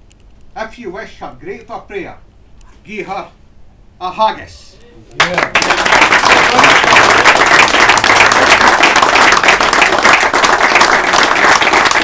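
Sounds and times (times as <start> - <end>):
small group applauding: 5.2 - 12.0.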